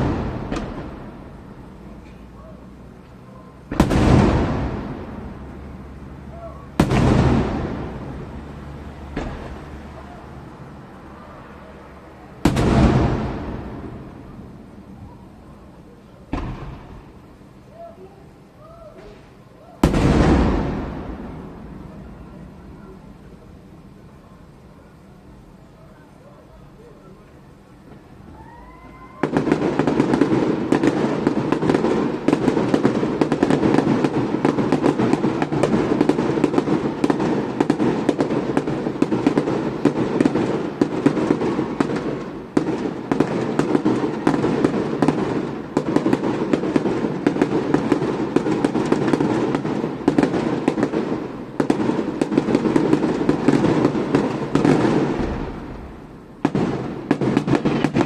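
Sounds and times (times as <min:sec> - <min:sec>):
fireworks crackling and popping: 0:00.0 - 0:58.0
rising firework whistle: 0:03.3 - 0:15.8, 0:27.9 - 0:50.2.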